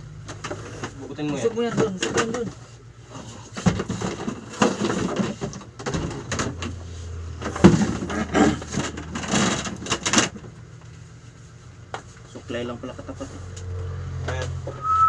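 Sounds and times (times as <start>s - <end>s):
steady low hum: 0.0s - 15.0s
cardboard knocks scrapes and rustling: 3.1s - 10.1s.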